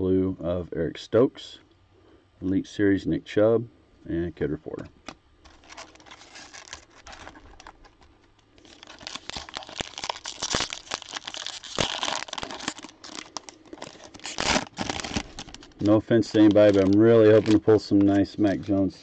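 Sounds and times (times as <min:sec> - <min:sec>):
cellophane wrapper crinkling and tearing: 0:05.4 - 0:18.7.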